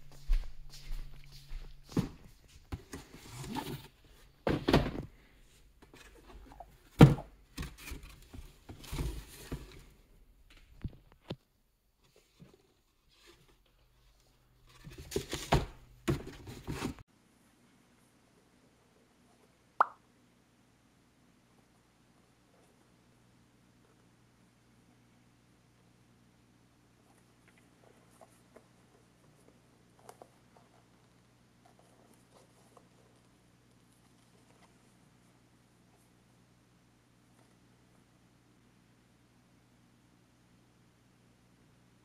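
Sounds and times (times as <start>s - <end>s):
cardboard boxes thunking and knocking: 1.9s - 5.2s, 5.9s - 9.8s, 14.8s - 17.0s.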